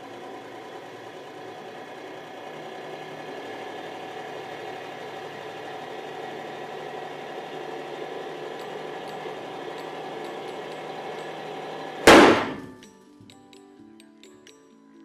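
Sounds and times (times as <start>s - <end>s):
loud metal bang with ringing: 12.1s - 12.8s.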